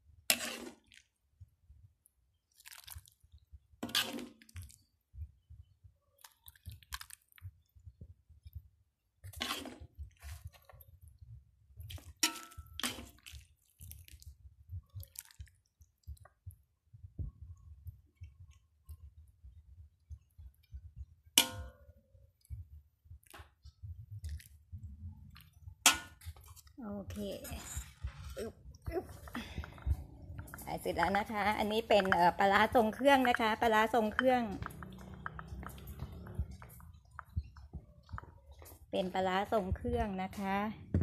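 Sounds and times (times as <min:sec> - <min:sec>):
ladle scraping a metal wok: 0:00.3 - 0:00.9, 0:03.8 - 0:04.4, 0:09.3 - 0:10.4.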